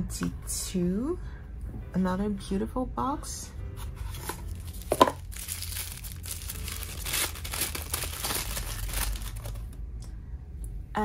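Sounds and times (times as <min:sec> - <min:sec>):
tissue paper crinkling: 0:03.9 - 0:09.8.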